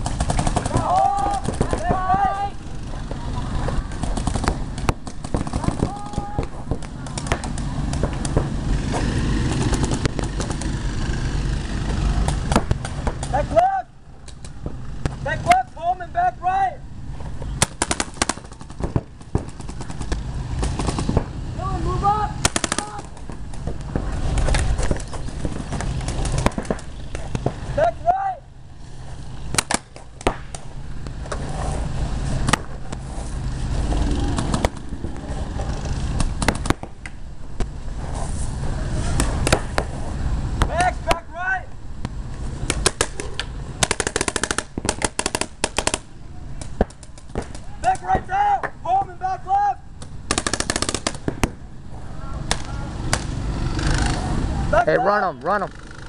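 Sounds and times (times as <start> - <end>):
paintball markers firing: 0.0 - 2.3, 3.7 - 10.8, 17.5 - 21.3, 22.4 - 27.6, 29.5 - 31.4, 34.3 - 35.3, 36.2 - 37.8, 39.1 - 39.9, 42.6 - 48.8, 50.0 - 51.6.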